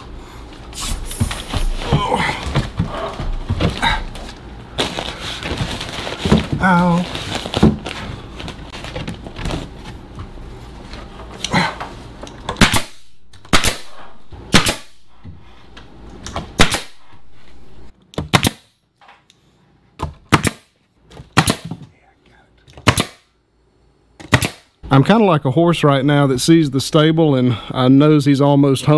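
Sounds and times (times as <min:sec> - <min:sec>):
low background hum: 0:00.0 - 0:28.9
nail gun firing: 0:12.6 - 0:15.0, 0:16.6 - 0:17.0, 0:18.2 - 0:18.7, 0:20.3 - 0:20.7, 0:21.3 - 0:21.7, 0:22.8 - 0:23.3, 0:24.2 - 0:24.7.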